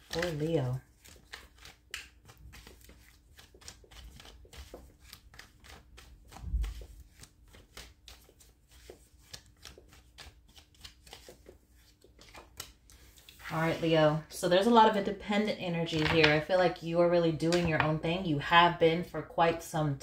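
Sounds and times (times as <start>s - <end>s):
cards being shuffled: 0.0s - 13.8s, 15.9s - 16.4s.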